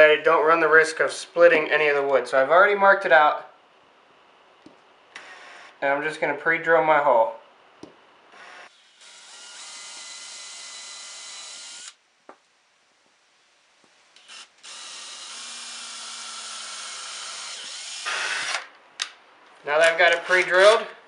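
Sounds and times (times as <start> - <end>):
cordless drill boring into wood: 8.4 - 12.0, 14.2 - 18.7.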